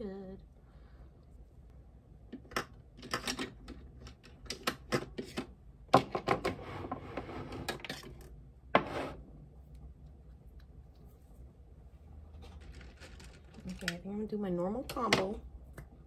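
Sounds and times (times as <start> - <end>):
rustling: 10.8 - 14.0.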